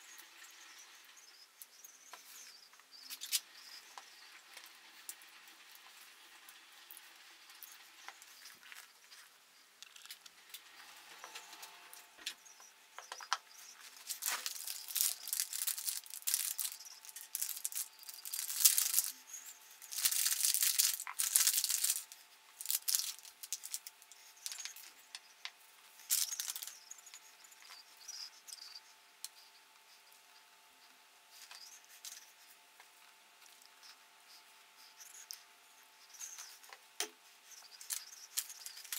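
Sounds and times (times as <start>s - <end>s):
gloves and cloth rustling: 13.2s - 25.0s, 25.6s - 27.8s
metal parts clicking: 14.0s - 19.2s, 19.8s - 24.9s, 26.0s - 26.8s, 37.8s - 38.9s.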